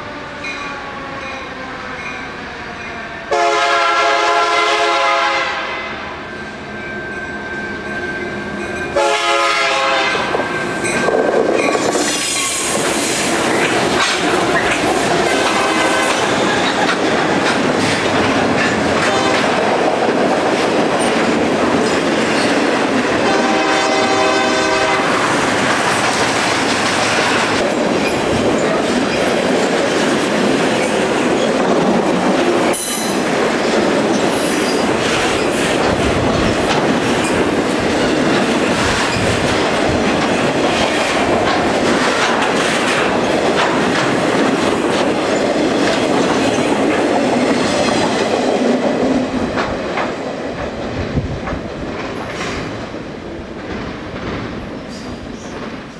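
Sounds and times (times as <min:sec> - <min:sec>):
train horn: 0:00.0 - 0:02.2, 0:03.3 - 0:06.3, 0:09.0 - 0:10.5, 0:15.3 - 0:16.5, 0:18.8 - 0:19.7, 0:23.2 - 0:25.4, 0:27.0 - 0:27.6
diesel locomotive: 0:00.0 - 0:55.9
train wheels clattering: 0:08.2 - 0:55.9.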